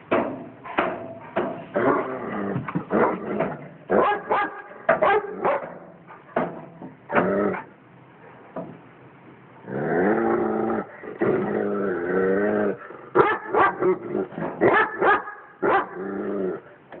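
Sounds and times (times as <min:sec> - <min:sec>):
dog barking: 0:03.9 - 0:05.8, 0:13.2 - 0:14.0, 0:14.6 - 0:16.0.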